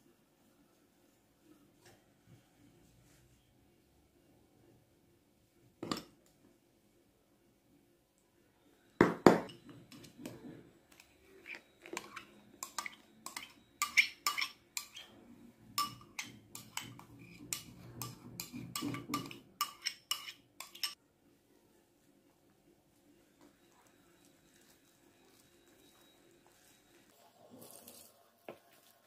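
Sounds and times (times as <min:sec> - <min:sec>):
metal spoon clinking glass bowl: 0:09.4 - 0:10.4, 0:11.4 - 0:15.1, 0:15.8 - 0:21.0.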